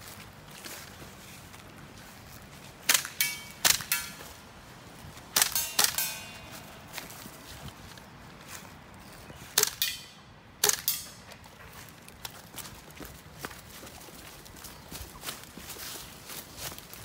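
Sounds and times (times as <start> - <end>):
airsoft rifle shots: 2.8 - 4.3, 5.3 - 6.7, 9.6 - 11.2.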